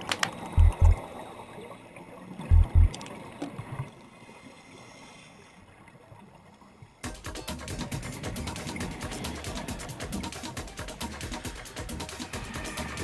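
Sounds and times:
underwater wash: 0:00.0 - 0:06.8
deep thumps: 0:00.6 - 0:01.0, 0:02.5 - 0:02.9.

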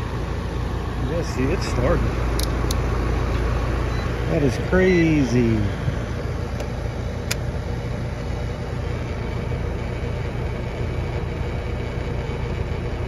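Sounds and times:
heat pump compressor humming: 0:00.0 - 0:13.0
sharp click: 0:02.3 - 0:02.8.

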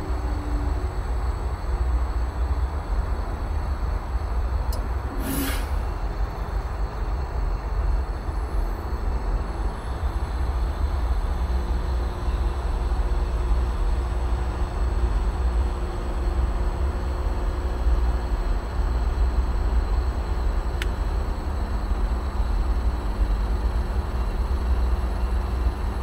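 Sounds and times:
heat pump unit low rumble: 0:00.0 - 0:26.0
brief hiss: 0:05.1 - 0:06.0.

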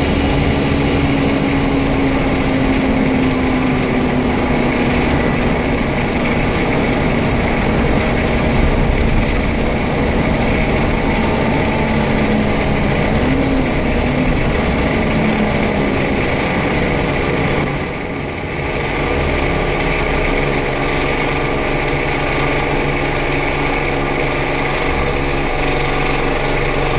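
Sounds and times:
bus diesel engine: 0:00.0 - 0:26.9
road noise: 0:00.0 - 0:26.9.

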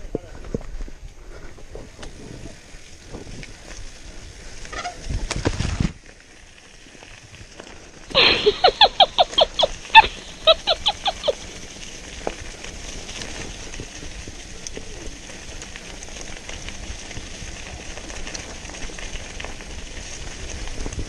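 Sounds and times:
bike rumbling on dirt trail: 0:00.0 - 0:21.0
comic laughing sound effect: 0:08.2 - 0:11.5.

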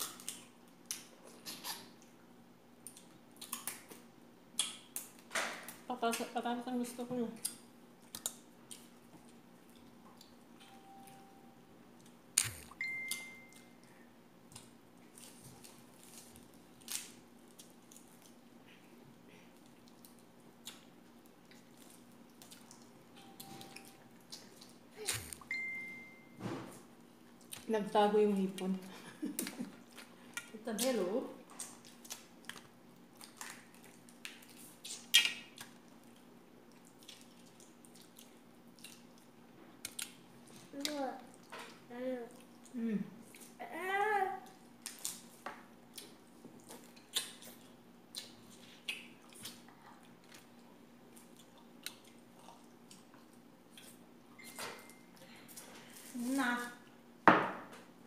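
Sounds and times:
shelling and chewing seafood: 0:11.9 - 0:25.6, 0:29.3 - 0:43.6, 0:44.4 - 0:54.3
brief ringing tone: 0:12.8 - 0:13.7, 0:25.5 - 0:26.4
mouth smacks: 0:34.8 - 0:35.7.

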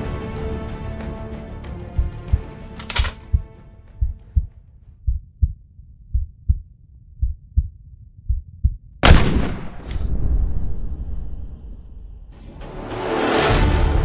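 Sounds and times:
heartbeat thumps: 0:01.7 - 0:02.6, 0:03.2 - 0:09.0
rifle shot: 0:09.0 - 0:10.4.

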